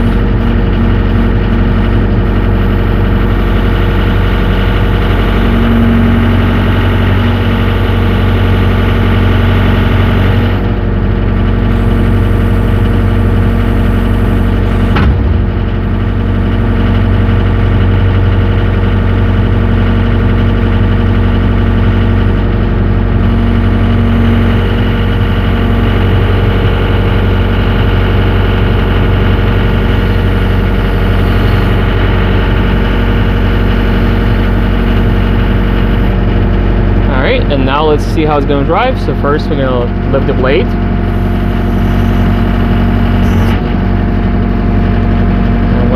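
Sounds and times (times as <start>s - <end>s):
diesel engine running: 0.0s - 45.9s
sharp knock: 14.9s - 15.6s.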